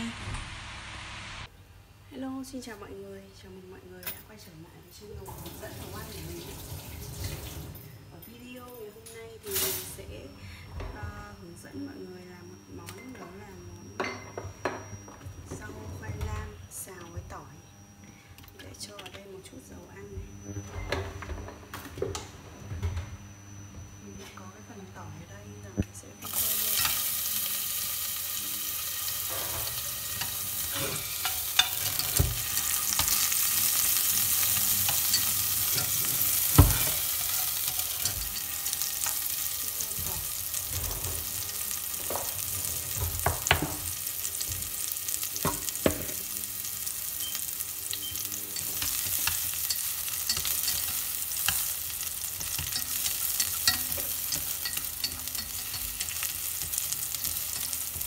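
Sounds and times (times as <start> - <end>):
garlic sizzling in hot oil: 5.2 - 7.7, 26.2 - 58.0
chopsticks stirring garlic: 26.3 - 58.0.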